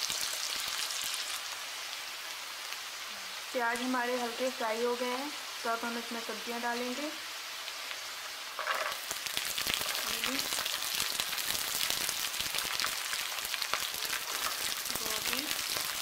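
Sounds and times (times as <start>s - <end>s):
onions sizzling in hot oil: 0.0s - 16.0s.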